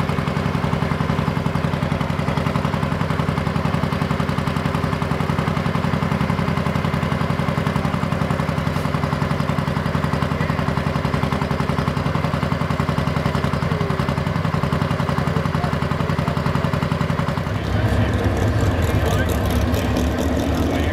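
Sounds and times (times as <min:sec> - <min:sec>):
diesel engine idling: 0:00.0 - 0:20.9.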